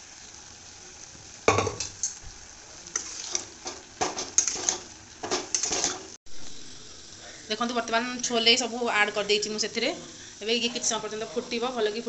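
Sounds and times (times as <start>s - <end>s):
faint sizzle: 0.0s - 12.0s
spoon scraping metal pan: 2.9s - 6.2s.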